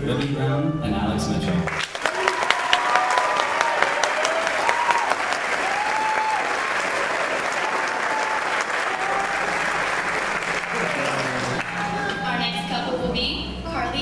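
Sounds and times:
audience applauding: 1.6s - 12.7s.

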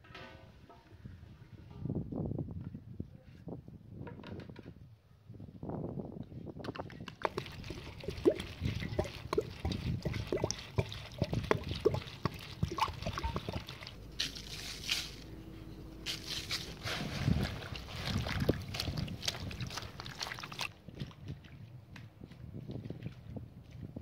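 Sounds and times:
water pouring and splashing: 6.6s - 15.3s, 16.0s - 21.7s.

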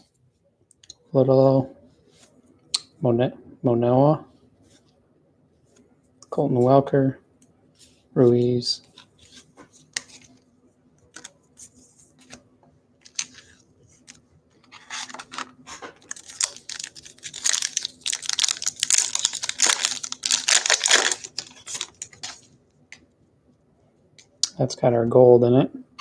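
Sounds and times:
foil wrapper tearing and crinkling: 14.8s - 22.5s.

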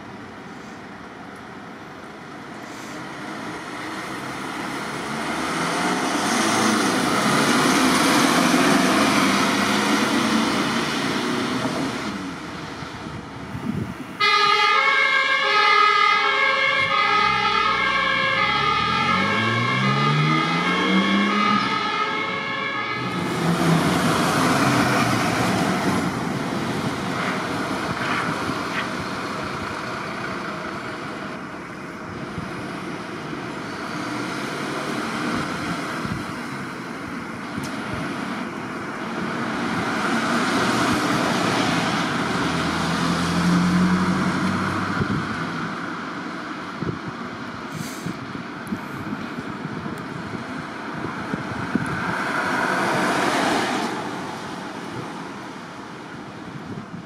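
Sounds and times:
road and vehicle noise: 0.0s - 57.0s
two-tone emergency siren: 14.2s - 23.6s.

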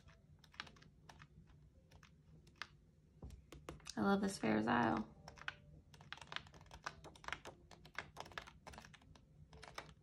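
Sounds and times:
paper sheets clicking: 5.3s - 10.0s.

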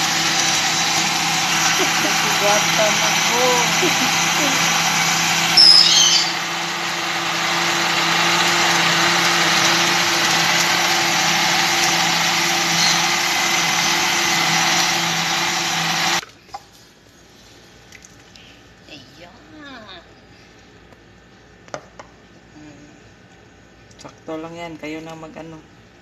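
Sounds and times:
blender motor running: 0.0s - 16.2s.

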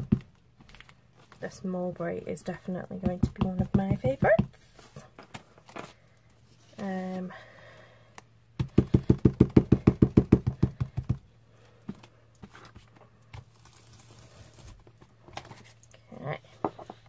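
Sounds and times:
foam dauber thumping on paper: 2.9s - 4.6s.

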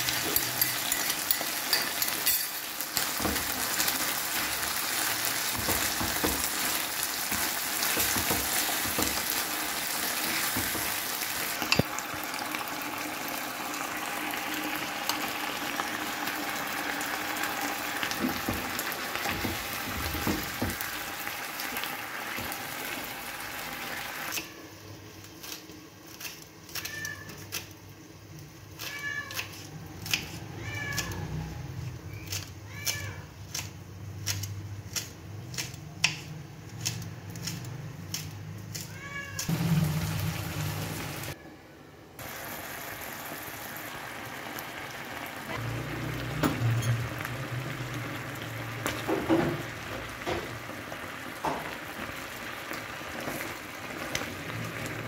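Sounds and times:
chicken sizzling in a pan: 0.0s - 24.9s, 39.0s - 41.4s, 42.2s - 55.0s
cat meowing: 30.4s - 31.5s, 38.9s - 39.5s.

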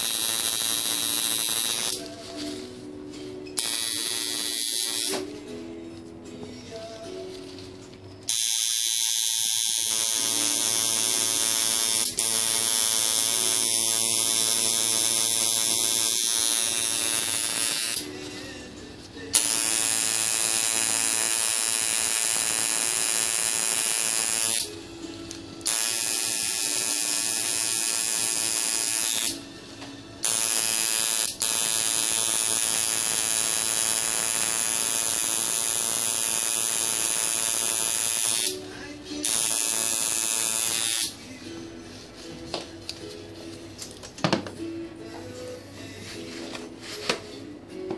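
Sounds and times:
tattoo machine buzzing: 0.0s - 2.1s, 3.6s - 5.2s, 8.3s - 18.1s, 19.3s - 24.8s, 25.6s - 29.5s, 30.2s - 38.6s, 39.2s - 41.2s.

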